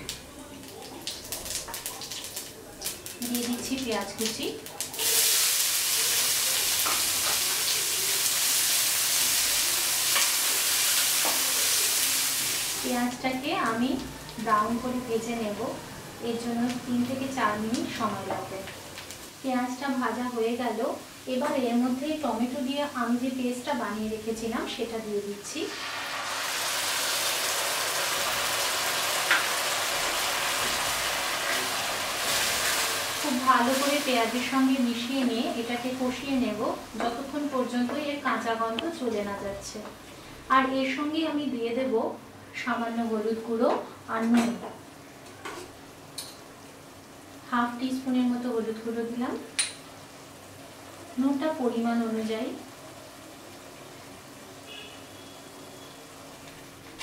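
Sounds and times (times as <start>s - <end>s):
onions sizzling in oil: 0.0s - 41.9s, 42.5s - 57.0s
paste sizzling in hot oil: 1.0s - 15.0s, 25.4s - 37.3s.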